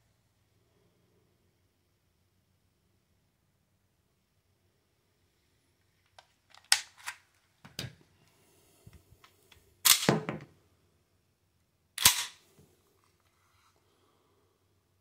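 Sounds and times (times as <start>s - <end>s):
pistol slide clatter: 9.9s - 10.2s, 12.0s - 12.4s
pistol action clicks: 12.0s - 12.4s
sharp snap: 12.0s - 12.4s.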